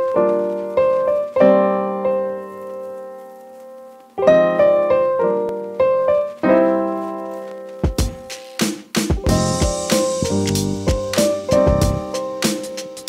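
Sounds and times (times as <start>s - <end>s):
keyboard chords: 4.2s - 13.0s.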